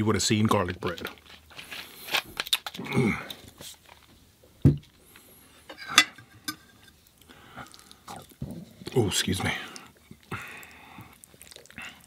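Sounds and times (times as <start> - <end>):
person vocal sound: 2.8 - 3.3.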